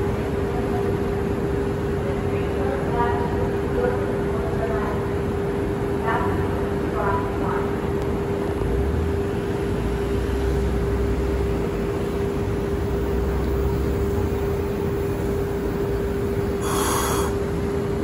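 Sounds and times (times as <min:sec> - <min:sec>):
streetcar motor hum and rumble: 0:00.0 - 0:18.0
short hiss: 0:16.6 - 0:17.4.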